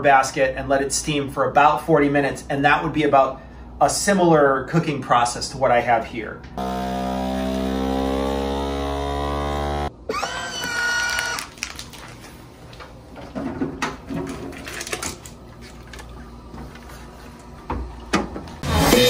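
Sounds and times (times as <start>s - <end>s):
vacuum sealer pump motor: 6.6s - 11.7s, 18.6s - 19.0s
clicks and knocks of plastic: 11.4s - 16.9s.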